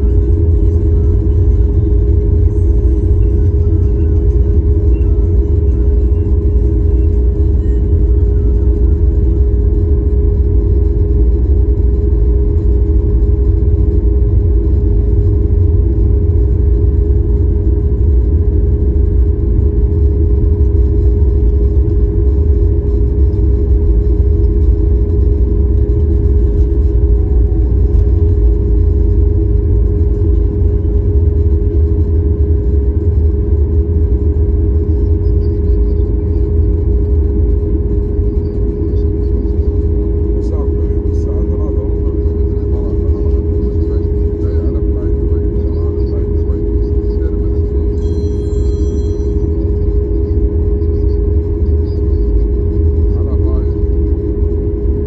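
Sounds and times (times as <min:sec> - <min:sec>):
constant humming tone: 0:00.0 - 0:55.0
jet engines low rumble: 0:00.0 - 0:55.0.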